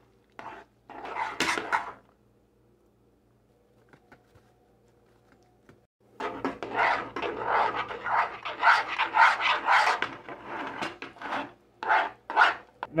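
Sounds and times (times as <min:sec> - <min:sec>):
metal spoon scraping saucepan: 0:00.4 - 0:02.0, 0:06.2 - 0:12.7.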